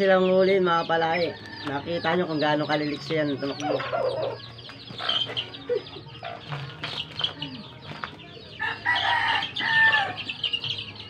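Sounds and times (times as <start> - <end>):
chicks peeping: 0.0 - 11.0
chicken clucks: 1.1 - 11.0
loud chicken call: 8.6 - 10.3.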